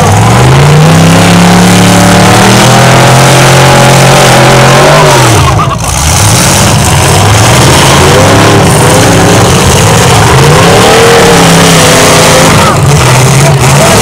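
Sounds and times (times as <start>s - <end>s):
car engines revving loudly: 0.0s - 14.0s.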